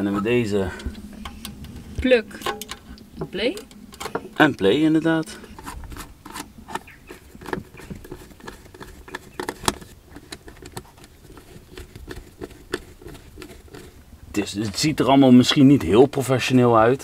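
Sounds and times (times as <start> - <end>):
cable connectors clicking and tapping: 2.4 - 13.9.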